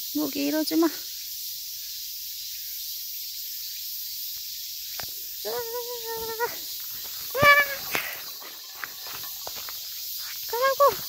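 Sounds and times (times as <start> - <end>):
mountain stream running: 6.5 - 11.0.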